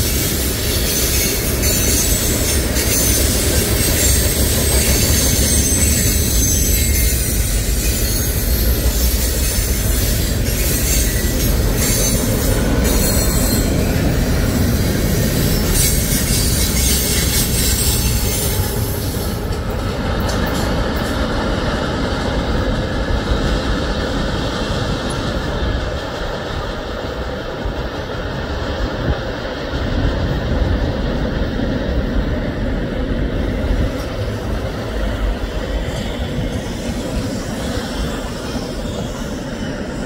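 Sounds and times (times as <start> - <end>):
train wheels rumbling on rail: 0.0 - 40.0
high-pitched wheel squeal: 0.1 - 13.9, 15.2 - 19.2.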